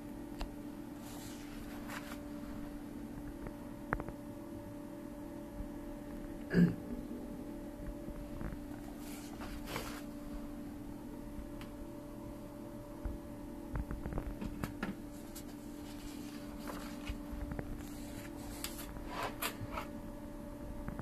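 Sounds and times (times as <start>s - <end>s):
steady hum: 0.0s - 21.0s
paper rustling: 1.0s - 2.6s, 8.6s - 10.2s, 15.1s - 19.9s.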